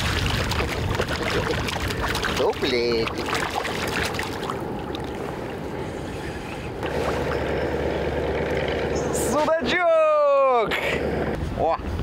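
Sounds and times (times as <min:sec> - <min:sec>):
fish thrashing at surface: 0:00.0 - 0:05.1
water splashing at boat side: 0:00.0 - 0:05.6
steady low hum: 0:03.0 - 0:09.4.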